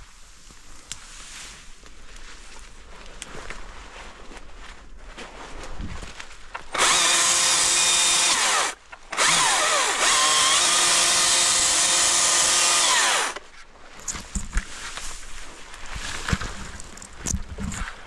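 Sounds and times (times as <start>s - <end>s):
brush rustling and snapping: 0.4s - 3.7s, 10.0s - 18.0s
chainsaw cutting branches: 6.6s - 13.4s.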